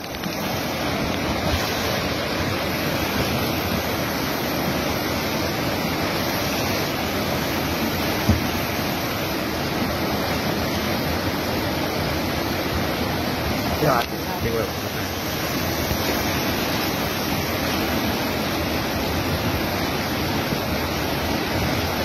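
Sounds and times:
flood river rushing: 0.0 - 22.0
low thump: 8.2 - 8.6.

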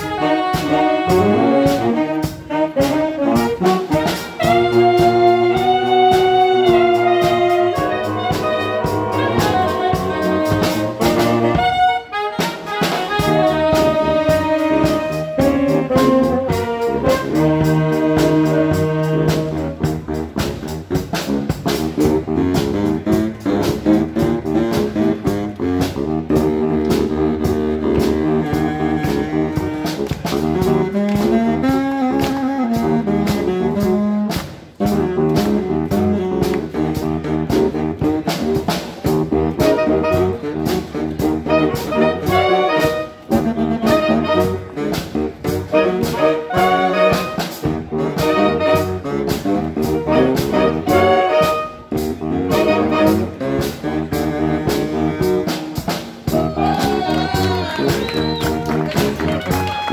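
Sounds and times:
wind band playing chords: 0.0 - 59.9.

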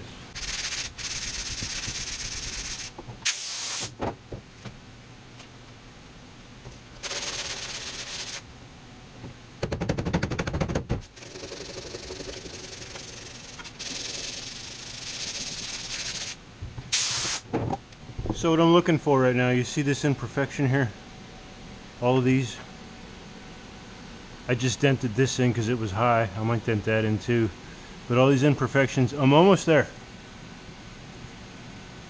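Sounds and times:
loud rapid rattling: 0.4 - 2.9, 7.0 - 8.4, 11.2 - 16.4
air blow gun hissing: 0.4 - 3.9, 12.6 - 17.4.

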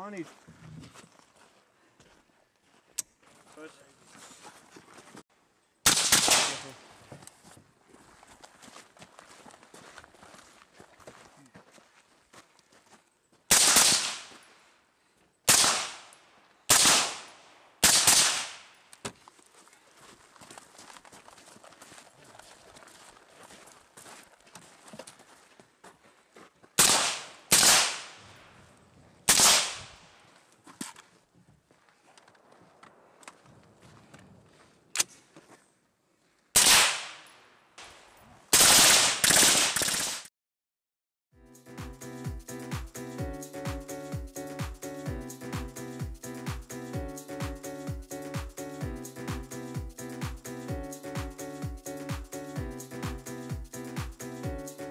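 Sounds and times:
rifle gunshots: 5.9 - 6.7, 13.5 - 14.3, 15.5 - 16.1, 16.7 - 18.6, 26.8 - 28.2, 29.3 - 29.9, 36.6 - 37.2, 38.6 - 40.2
suppressed rifle shots: 5.9 - 6.7, 13.5 - 14.2, 15.5 - 16.0, 16.7 - 18.6.

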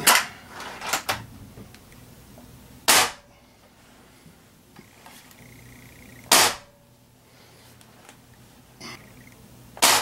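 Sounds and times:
air rifle shots: 2.9 - 3.2, 6.2 - 6.7, 9.8 - 10.0.

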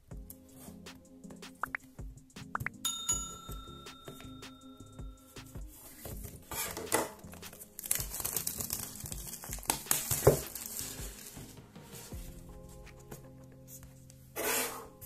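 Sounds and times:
plastic shrink-wrap crinkling: 6.7 - 11.4.

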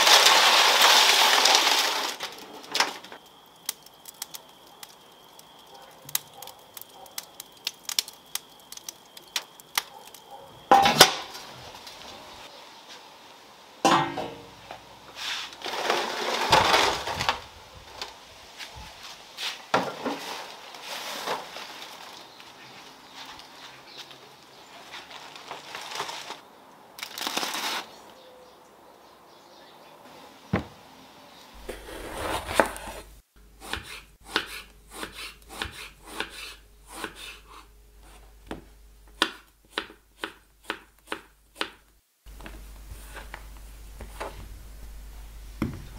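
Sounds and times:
wood embers crackling: 0.0 - 13.8, 14.4 - 28.1, 31.6 - 37.1, 37.9 - 45.9
metal tray scraping and clanking: 15.2 - 17.2.

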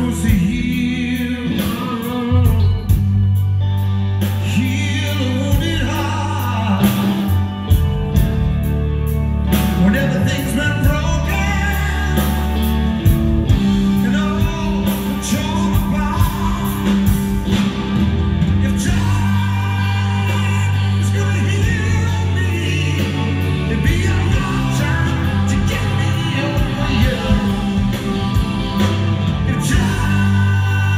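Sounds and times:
person singing: 0.0 - 3.5, 4.1 - 7.7, 9.5 - 17.3, 18.5 - 30.9
bass notes: 0.0 - 30.9
drums: 0.0 - 30.9
electric guitar: 0.0 - 30.9.

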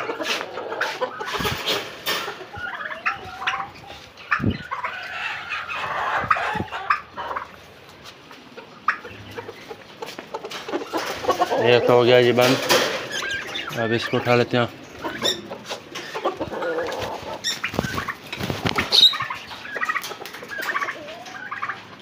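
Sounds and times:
turkeys clucking and calling: 0.0 - 22.0
scuffling: 15.5 - 20.9.

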